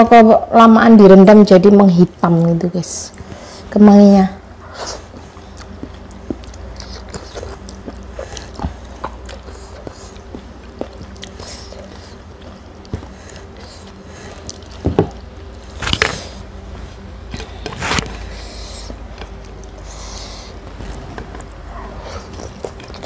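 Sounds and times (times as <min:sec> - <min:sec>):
chewing: 0:04.6 - 0:16.4, 0:17.3 - 0:23.0.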